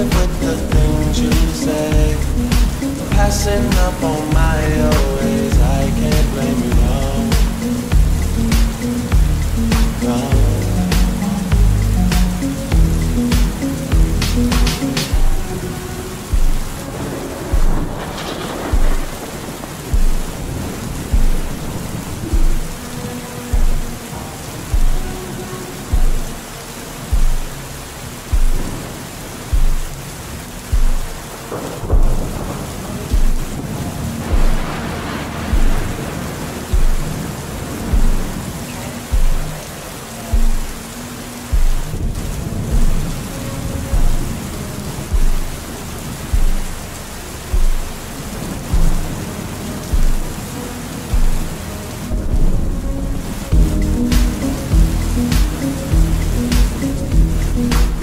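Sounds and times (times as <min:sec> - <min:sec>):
deep bass thumps of music: 0:00.0 - 0:15.5, 0:16.2 - 0:16.8, 0:17.5 - 0:22.9, 0:23.5 - 0:24.0, 0:24.7 - 0:25.2, 0:25.9 - 0:26.4, 0:27.1 - 0:27.7, 0:28.3 - 0:28.9, 0:29.5 - 0:34.8, 0:35.4 - 0:36.1, 0:36.7 - 0:38.4, 0:39.1 - 0:39.7, 0:40.3 - 0:43.2, 0:43.9 - 0:44.4, 0:45.1 - 0:49.2, 0:49.8 - 0:50.4, 0:51.1 - 0:51.6, 0:52.2 - 0:52.8, 0:53.5 - 0:58.0
low held bass notes: 0:00.0 - 0:18.1, 0:43.8 - 0:50.4, 0:51.1 - 0:58.0
heavy rain hissing: 0:00.0 - 0:58.0
slow lofi beat: 0:00.0 - 0:58.0.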